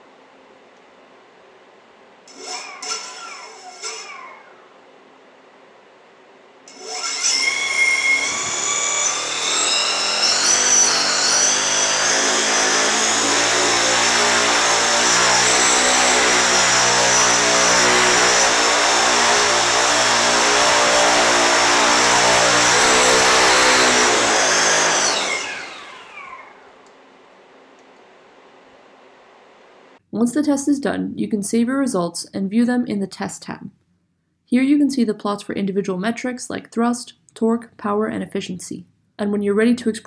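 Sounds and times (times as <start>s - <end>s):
motor and propeller whirring: 2.3s - 4.8s, 6.7s - 26.9s.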